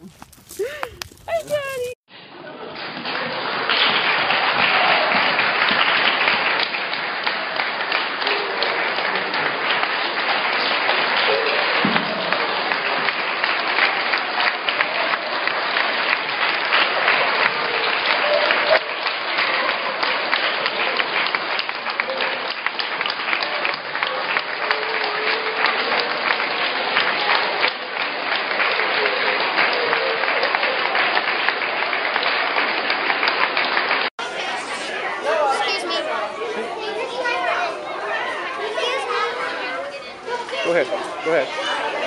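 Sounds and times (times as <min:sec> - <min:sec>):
scattered voices: 0:00.0 - 0:02.0, 0:34.2 - 0:42.0
crowd of children applauding: 0:00.0 - 0:42.0.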